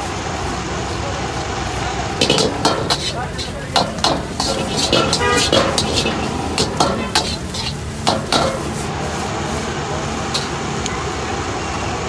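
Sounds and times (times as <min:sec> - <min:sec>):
gas burner rushing: 0:00.0 - 0:11.6
rice sizzling: 0:00.0 - 0:12.0
metal spatula striking a wok: 0:02.2 - 0:08.8, 0:10.3 - 0:10.6.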